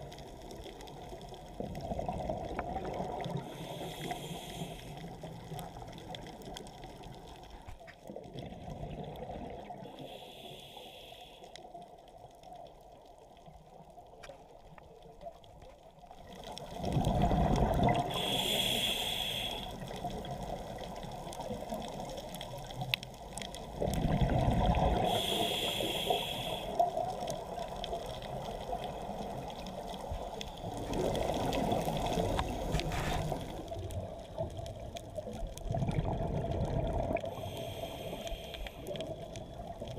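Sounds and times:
exhaled bubbles bursting: 1.7s - 3.6s, 8.1s - 9.9s, 16.6s - 18.2s, 23.7s - 25.2s, 35.3s - 37.4s
breathing through a regulator: 3.4s - 5.3s, 9.8s - 11.6s, 17.9s - 20.0s, 24.8s - 26.9s, 37.1s - 39.4s.

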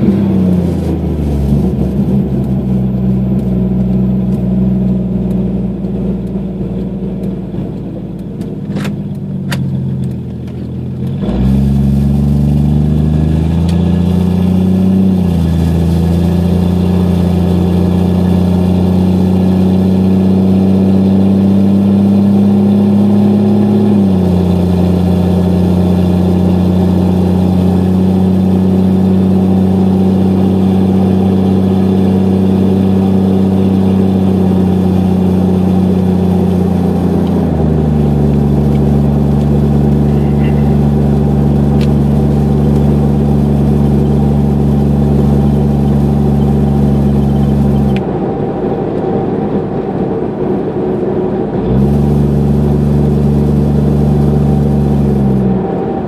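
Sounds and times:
engine idling and accelerating: 0.0s - 56.0s
exhaust drone: 0.0s - 56.0s.

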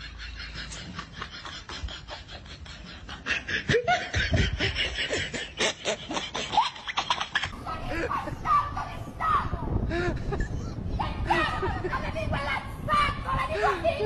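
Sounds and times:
person laughing breathily: 0.0s - 8.4s, 9.8s - 11.6s.

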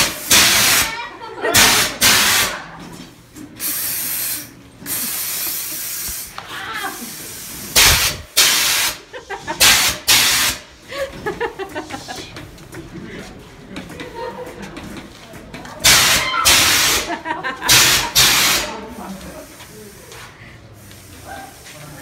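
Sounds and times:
compressed air blasts hissing: 0.0s - 1.0s, 1.6s - 2.6s, 3.5s - 10.8s, 15.8s - 20.1s.

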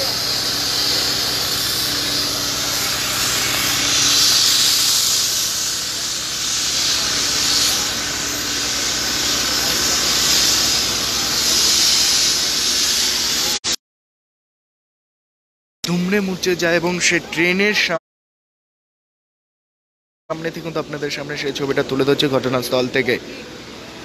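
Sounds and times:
loud steady hiss: 0.0s - 13.7s, 20.3s - 24.0s.

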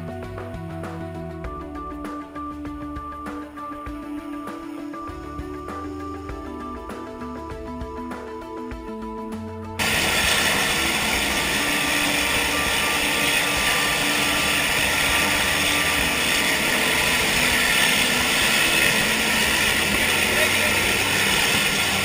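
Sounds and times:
background music: 0.0s - 22.0s
plane engine and propeller: 9.8s - 22.0s.

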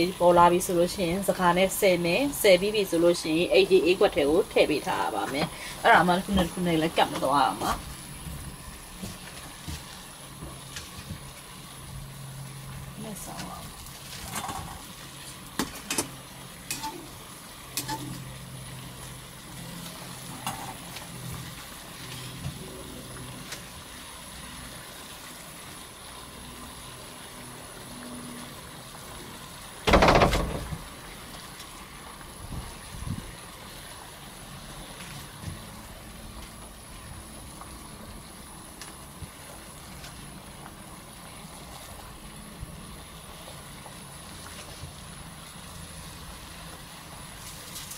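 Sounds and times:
water boiling in a pot: 0.0s - 47.9s
loud thump: 29.9s - 30.8s.

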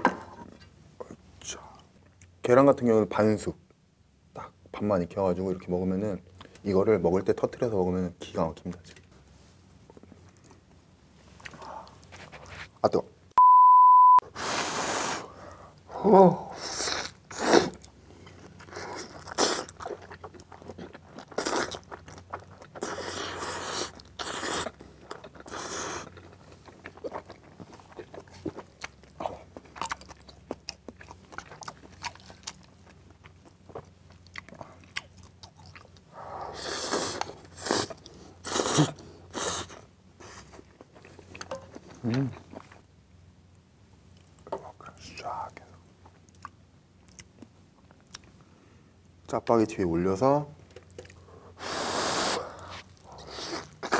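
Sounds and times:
wet chewing and mouth smacks: 17.1s - 36.1s
slurping noodles: 51.6s - 53.9s.

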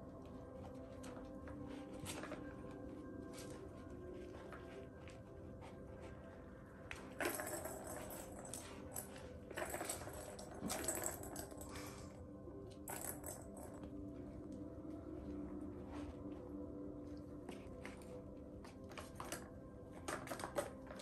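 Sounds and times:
balls rattling around plastic track: 7.0s - 11.7s, 12.8s - 13.8s, 19.0s - 21.0s.

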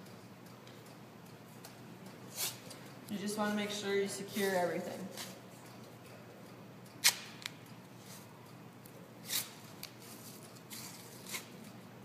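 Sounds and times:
tape being ripped off roll: 7.0s - 7.5s.

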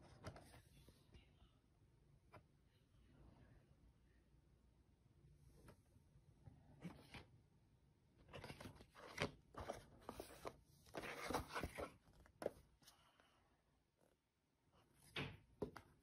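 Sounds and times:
paper rustling and crinkling: 8.2s - 12.7s.

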